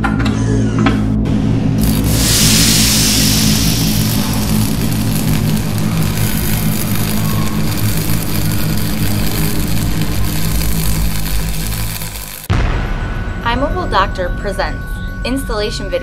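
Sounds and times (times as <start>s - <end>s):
electric arc buzzing with crackle: 1.8s - 12.5s.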